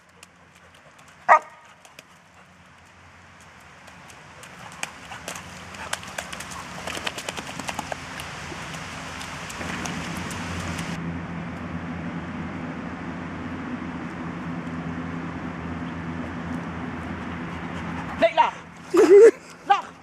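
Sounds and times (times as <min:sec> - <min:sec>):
paws and stick clicking in mud: 0:00.0 - 0:11.0, 0:15.8 - 0:19.6
steady low hum: 0:00.0 - 0:20.0.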